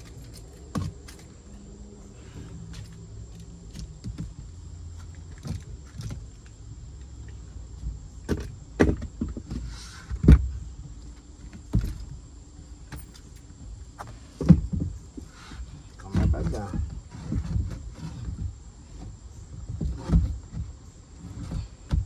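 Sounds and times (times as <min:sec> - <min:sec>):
wooden knocks and thumps: 0:08.2 - 0:10.5, 0:14.0 - 0:15.0, 0:16.1 - 0:22.0.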